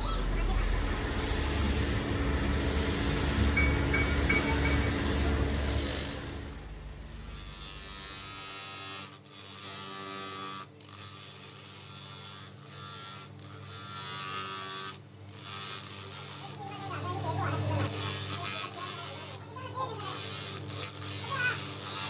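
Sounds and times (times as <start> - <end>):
motor whine: 0.0 - 9.2
grinding wheel on steel: 0.0 - 22.0.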